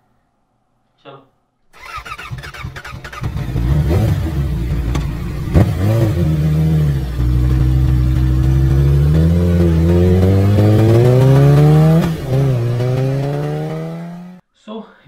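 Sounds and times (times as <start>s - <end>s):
vehicle engine starting and revving: 1.8s - 14.4s.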